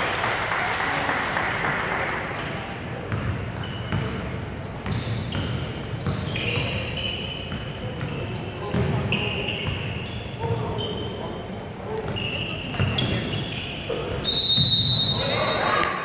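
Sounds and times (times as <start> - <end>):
basketball bouncing on court: 3.1 - 6.8, 7.5 - 10.0
sneaker squeaks: 3.1 - 16.0.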